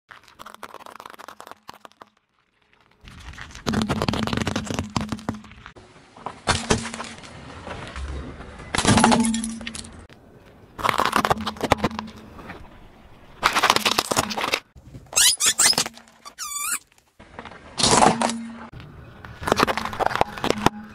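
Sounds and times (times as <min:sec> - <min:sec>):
gel balls crackling and popping: 0:00.1 - 0:05.7, 0:10.8 - 0:12.2.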